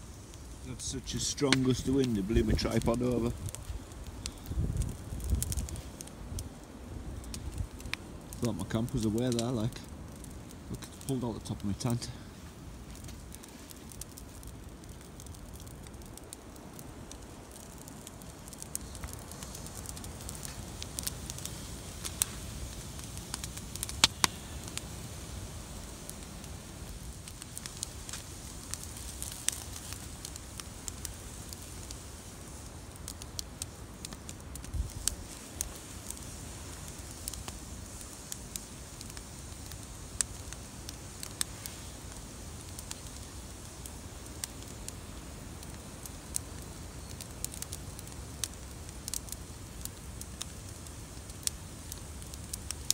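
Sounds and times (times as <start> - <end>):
wind rumbling on microphone: 0.0 - 9.2, 33.3 - 43.3
campfire crackling: 0.0 - 52.9
fire snaps and pops: 0.0 - 52.9.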